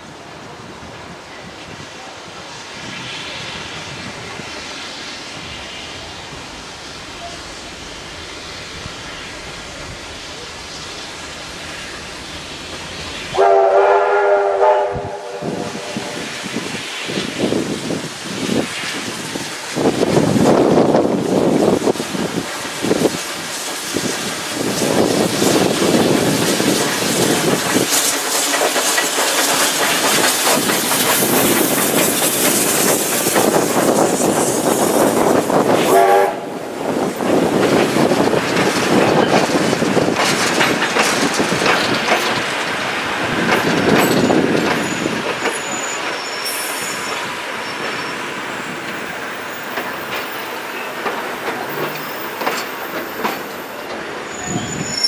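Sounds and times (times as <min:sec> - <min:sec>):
train wheels clattering over rail joints: 0:18.6 - 0:36.1, 0:37.0 - 0:54.8
high wheel squeal: 0:44.0 - 0:48.8, 0:53.5 - 0:55.0.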